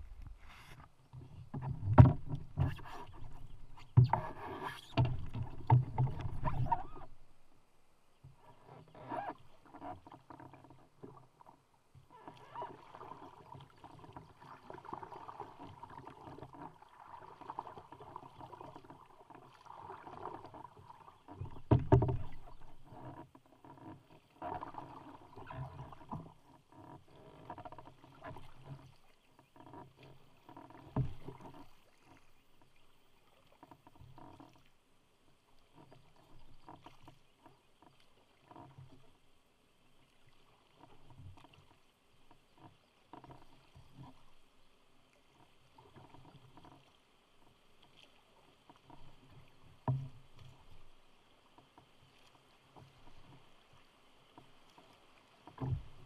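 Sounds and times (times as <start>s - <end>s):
paddle splashing in water: 0.0s - 56.0s
canoe thumps: 1.5s - 6.8s.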